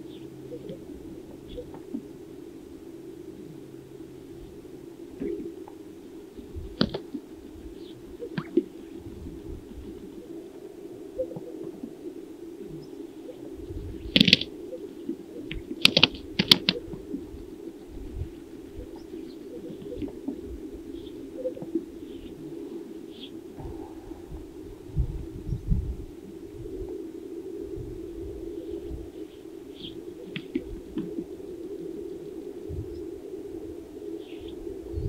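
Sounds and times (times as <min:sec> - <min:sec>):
steady low hum: 0:00.0 - 0:35.0
wing slaps: 0:14.1 - 0:14.5.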